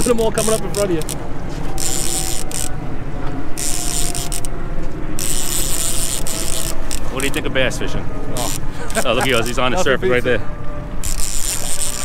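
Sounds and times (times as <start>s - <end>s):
fishing reel gears whirring: 0.0s - 2.9s, 3.5s - 4.6s, 5.2s - 7.5s, 8.3s - 9.6s, 11.0s - 12.0s.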